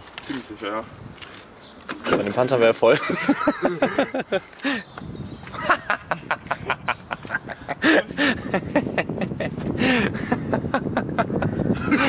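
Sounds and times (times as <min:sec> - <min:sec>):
laughter: 0:02.9 - 0:04.7, 0:05.5 - 0:12.0.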